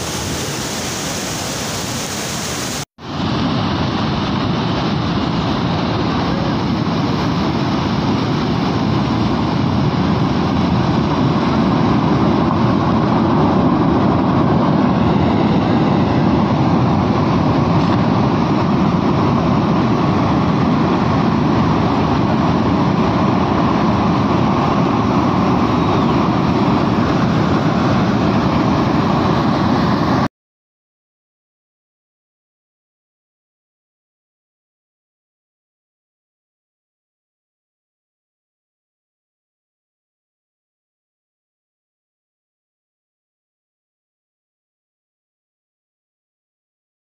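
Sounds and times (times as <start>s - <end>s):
floodwater torrent rushing: 0.0s - 30.3s.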